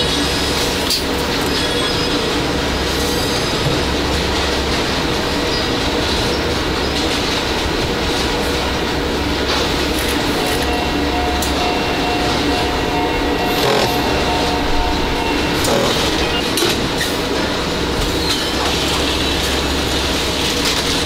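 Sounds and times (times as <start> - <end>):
conveyor and machinery din: 0.0 - 21.0
tool clicks and clanks: 13.6 - 14.0, 15.6 - 16.8.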